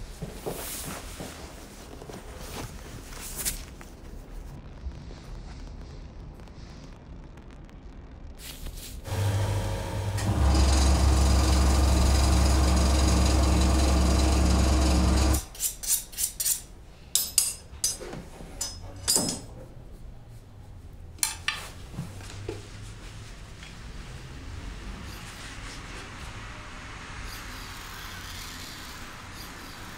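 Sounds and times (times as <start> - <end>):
leather skiving machine humming: 9.0 - 15.4.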